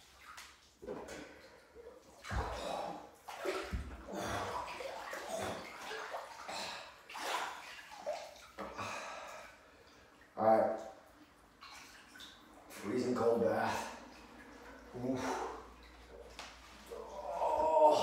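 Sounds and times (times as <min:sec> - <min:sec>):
water sloshing in bath: 0:00.0 - 0:18.0.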